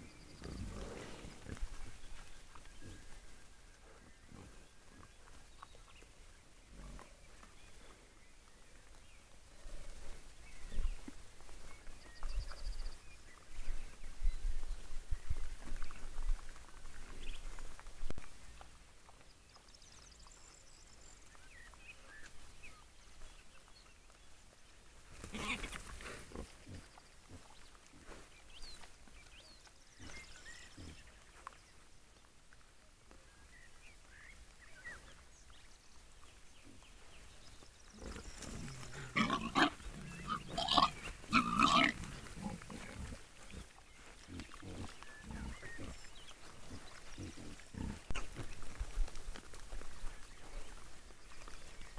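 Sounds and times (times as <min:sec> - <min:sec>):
wild boar grunting and squealing: 0:25.1 - 0:27.5, 0:37.9 - 0:48.4
boar rooting sounds: 0:36.6 - 0:51.9.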